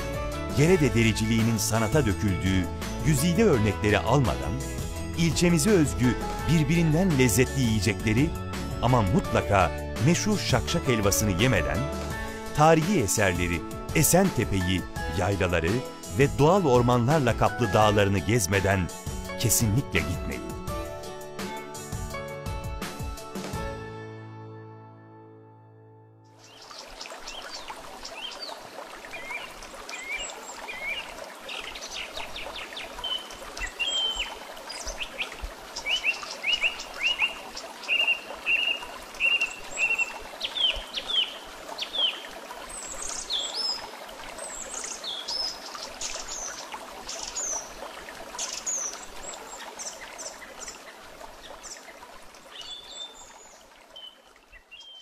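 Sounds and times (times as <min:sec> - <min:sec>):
running water: 0:00.0 - 0:22.2, 0:26.3 - 0:55.0
small birds chirping: 0:26.4 - 0:55.0.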